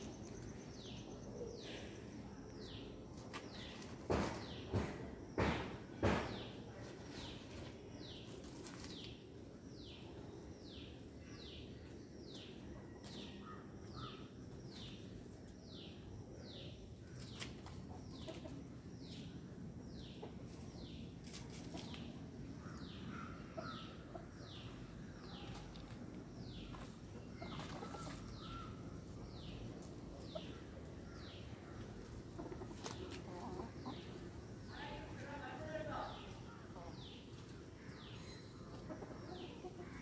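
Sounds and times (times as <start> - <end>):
chick peeping: 17.2 - 19.3, 23.6 - 34.8, 36.1 - 40.0.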